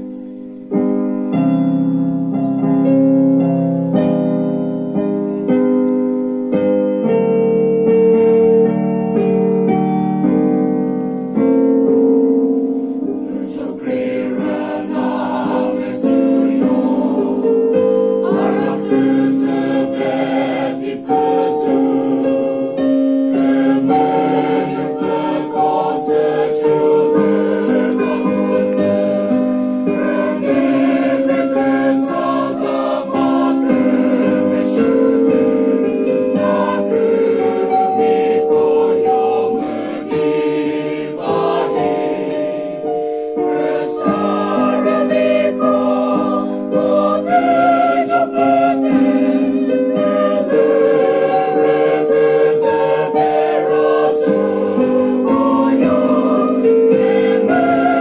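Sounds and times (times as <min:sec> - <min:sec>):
mixed choir singing: 0:13.0 - 0:58.0.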